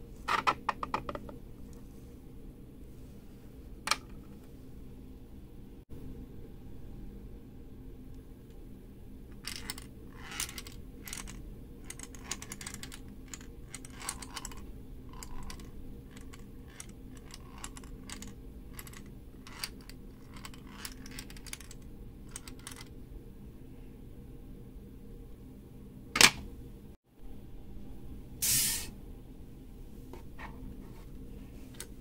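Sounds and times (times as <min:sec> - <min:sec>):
steel ball rolling in plastic maze: 0:09.4 - 0:22.9.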